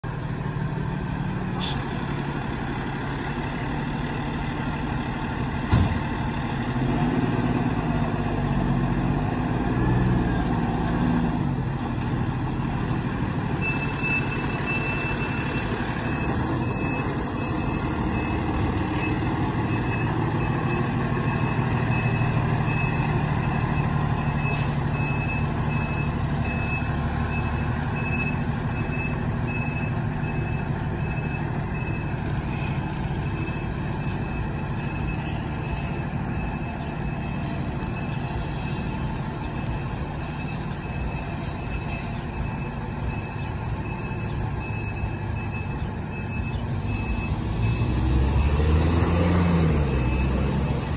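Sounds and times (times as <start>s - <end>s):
diesel truck engine running: 0.0s - 50.9s
reversing alarm beeping: 12.4s - 50.9s.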